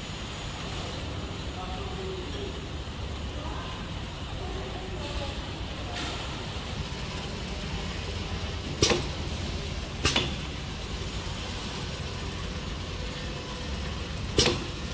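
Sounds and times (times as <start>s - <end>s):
labeling machine humming: 0.1s - 14.9s
sharp mechanical clicks: 8.6s - 10.5s, 14.2s - 14.9s.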